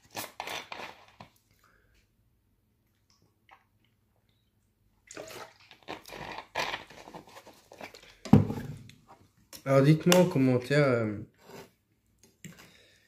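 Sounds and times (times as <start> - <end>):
gulping and sloshing liquid: 5.0 - 8.2
loud thump: 8.3 - 8.8.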